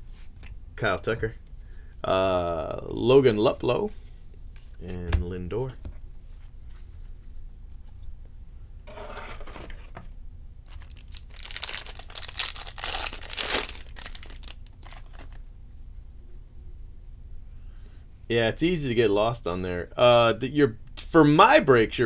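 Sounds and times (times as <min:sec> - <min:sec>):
foil wrapper ripping and crinkling: 0:10.6 - 0:15.4.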